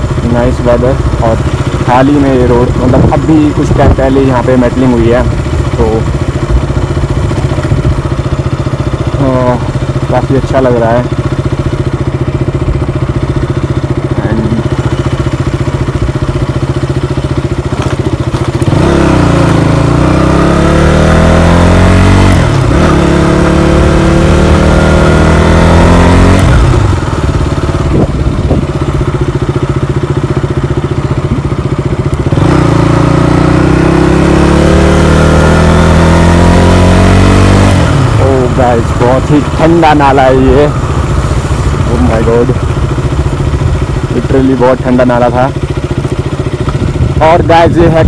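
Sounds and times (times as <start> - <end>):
motorcycle engine revving: 0.0 - 48.0.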